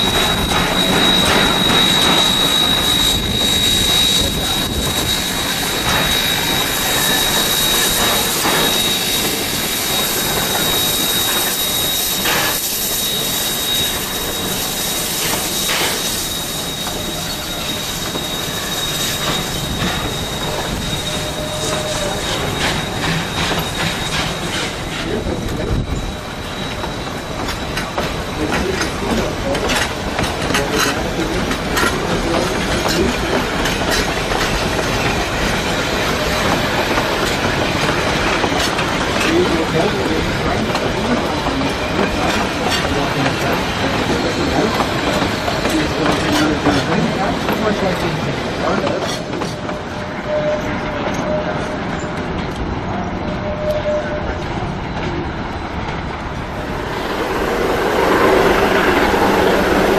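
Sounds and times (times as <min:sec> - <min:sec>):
train wheels rumbling: 0:00.0 - 0:59.9
wheel flanges squealing on rail: 0:00.0 - 0:59.9.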